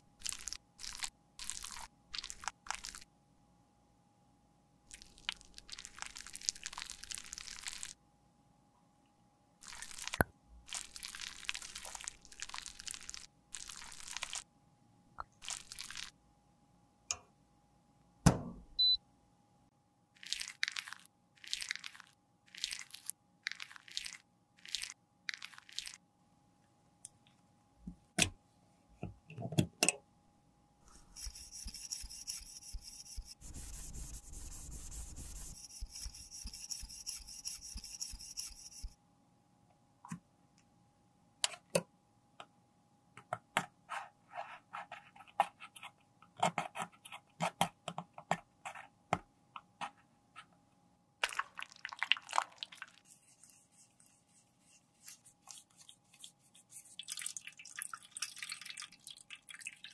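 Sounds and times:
metal spatula scraping lipstick: 30.9 - 38.9
tissue rubbing a case: 32.7 - 36.1.

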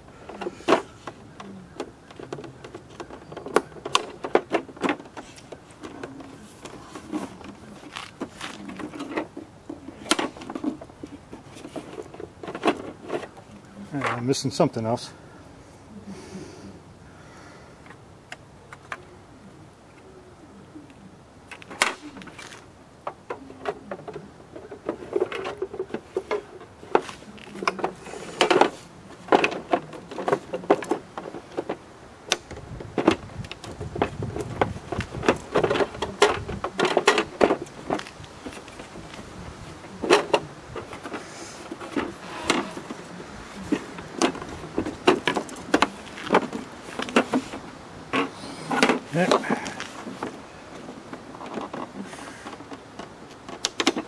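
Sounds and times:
hard plastic clicks and knocks: 39.9 - 54.0.

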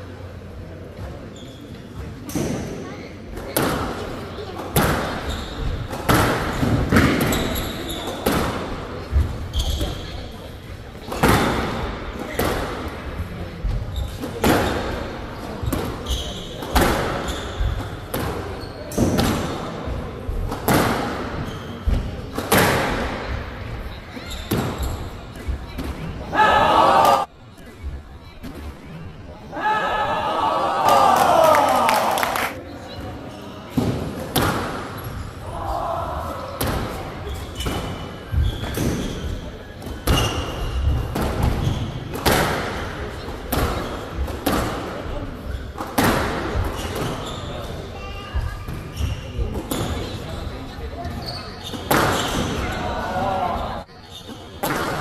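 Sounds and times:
shoe squeaks: 1.3 - 2.1, 5.1 - 8.3, 9.5 - 10.5, 13.9 - 15.0, 15.6 - 19.1, 21.4 - 22.0, 23.9 - 26.2, 37.1 - 42.1, 46.6 - 53.0, 53.9 - 54.6
squash ball hitting rackets and walls: 2.2 - 10.1, 11.0 - 13.0, 13.6 - 23.4, 24.3 - 26.2, 33.7 - 35.1, 36.5 - 47.8, 51.1 - 52.7, 54.6 - 55.0
squash ball hits: 4.7 - 5.2, 5.8 - 9.9, 11.0 - 12.8, 15.6 - 19.7, 20.4 - 23.3, 33.7 - 34.9, 36.6 - 37.0, 39.8 - 42.9.

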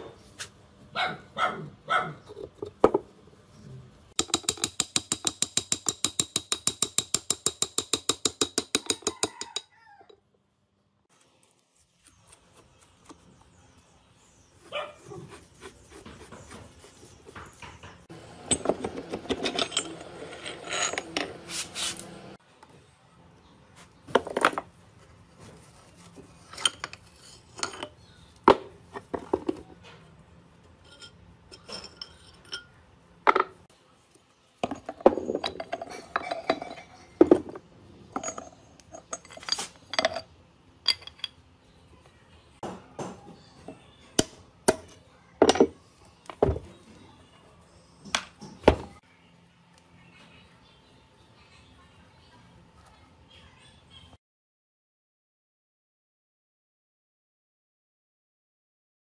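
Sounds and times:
metal clinking and scraping: 16.3 - 22.2, 26.3 - 28.3, 30.6 - 33.7, 34.6 - 41.4.

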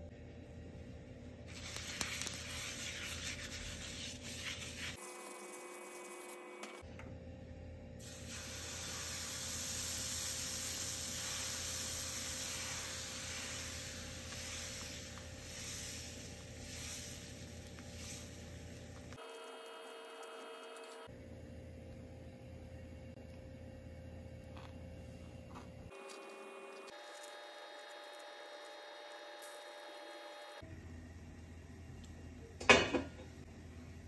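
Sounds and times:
batter hissing on hot pan: 1.5 - 5.0, 8.0 - 19.1.

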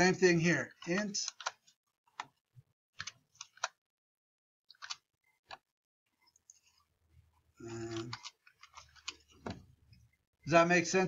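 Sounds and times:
keyboard and mouse clicks: 0.7 - 2.4, 3.0 - 3.8, 4.7 - 5.7, 7.7 - 9.6.

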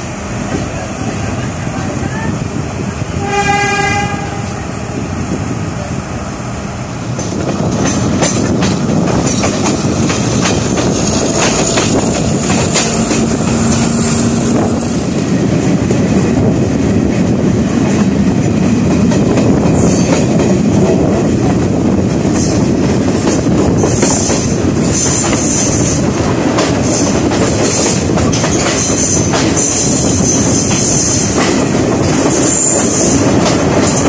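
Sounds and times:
train coaches rumbling: 0.0 - 34.0
train horn blast: 3.2 - 4.9
wheels clicking over rail joints: 7.1 - 14.1, 22.3 - 34.0.

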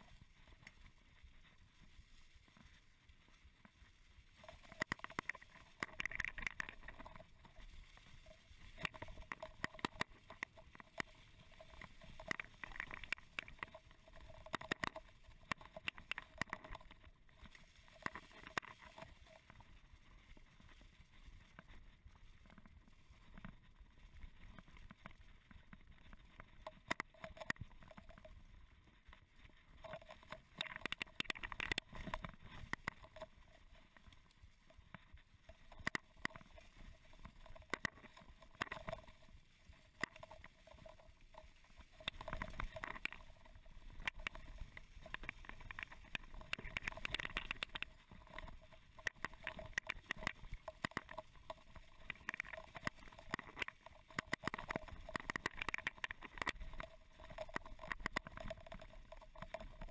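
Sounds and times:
bike clicking and rattling: 4.4 - 19.7, 29.0 - 59.9.

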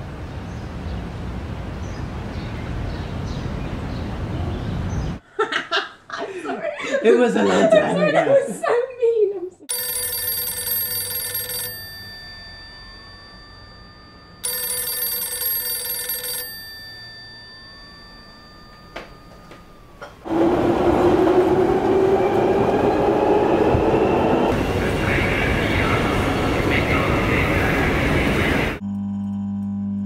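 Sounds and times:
telephone-like bell ringing: 9.7 - 20.2
underground train running: 16.5 - 28.8.

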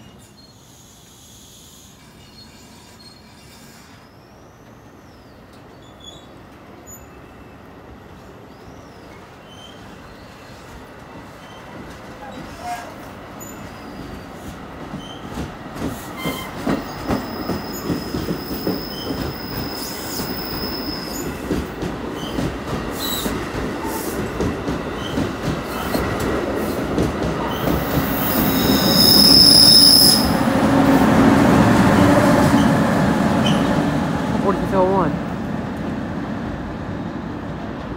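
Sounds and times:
train wheels clicking over rail joints: 14.0 - 29.2
high-pitched wheel squeal: 27.5 - 30.4.

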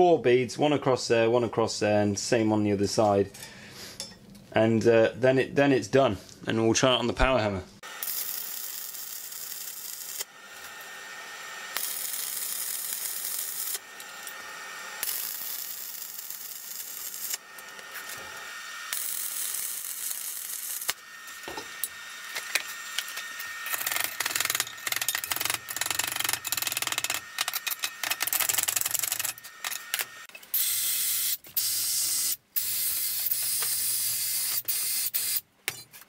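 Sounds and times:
welding arc crackling: 7.8 - 35.5.

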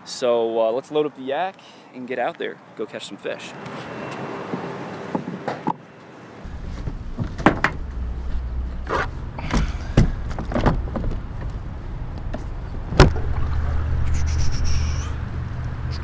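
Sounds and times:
low rumble: 6.4 - 16.0.

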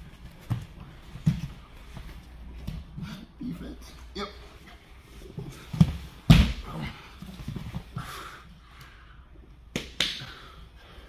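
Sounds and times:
bodies thudding on mats: 5.3 - 8.0.

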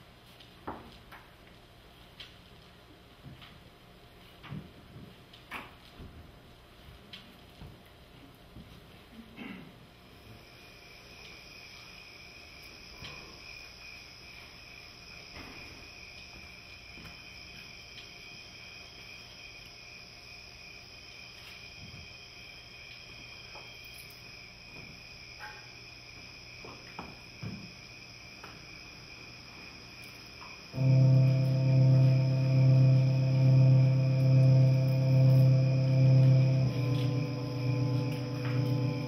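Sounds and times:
crickets trilling: 9.9 - 39.0.

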